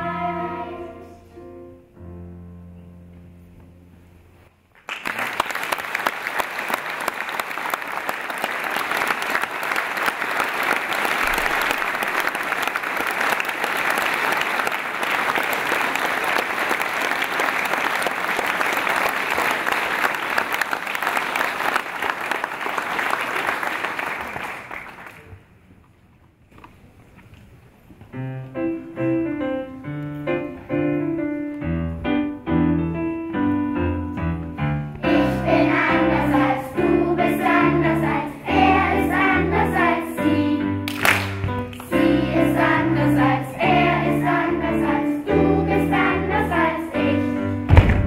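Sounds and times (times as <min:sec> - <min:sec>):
audience applauding: 0:04.8 - 0:25.4, 0:40.9 - 0:41.9.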